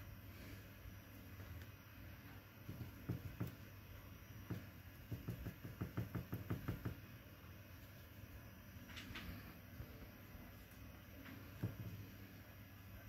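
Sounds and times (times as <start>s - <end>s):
paintbrush tapping in palette: 2.6s - 3.7s, 4.4s - 7.1s.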